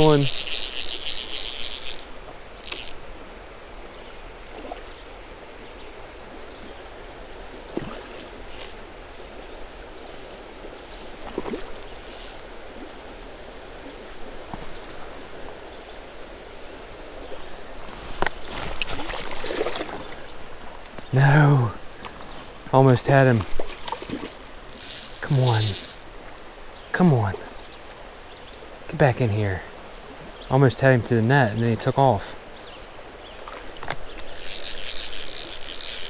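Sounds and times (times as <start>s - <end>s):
creek water running: 0.0s - 36.0s
short splashes and taps: 23.3s - 26.0s.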